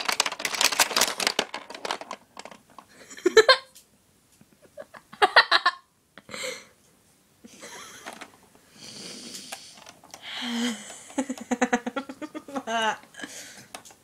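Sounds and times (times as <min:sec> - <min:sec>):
girl giggling breathily: 0:07.5 - 0:08.1.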